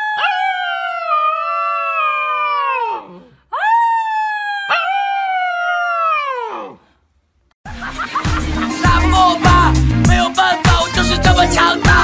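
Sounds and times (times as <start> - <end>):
puppy howling: 0.0 - 6.8.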